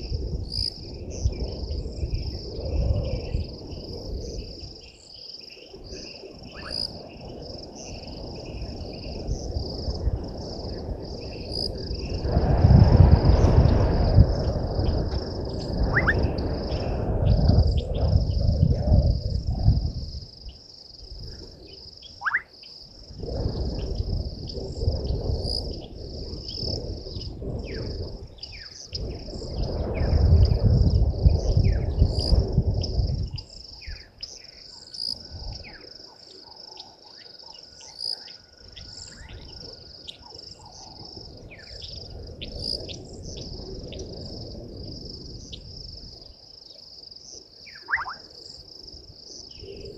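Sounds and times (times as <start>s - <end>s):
high-pitched insect chorus: 0.0s - 49.9s
rising whistles: 33.5s - 44.1s
short bird chirps: 47.7s - 48.2s.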